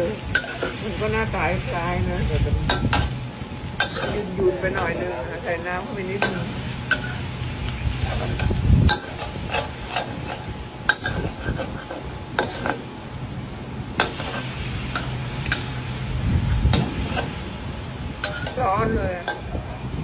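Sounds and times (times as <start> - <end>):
light sizzle: 0.0 - 20.0
steady low hum: 0.0 - 20.0
metal spatula scraping a wok: 0.2 - 1.3, 2.7 - 5.0, 5.8 - 12.9, 14.0 - 17.6, 18.2 - 19.5.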